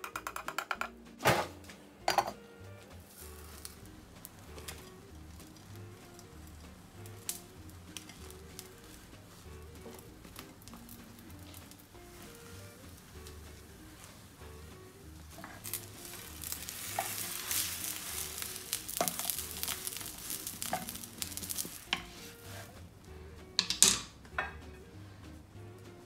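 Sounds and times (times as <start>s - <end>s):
spatula scraping pan: 3.0s - 22.9s
omelette sizzling in a frying pan: 3.1s - 22.9s.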